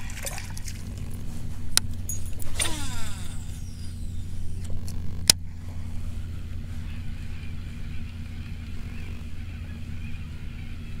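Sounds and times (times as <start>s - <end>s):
reel whirring: 0.0s - 9.6s
low hum: 0.0s - 11.0s.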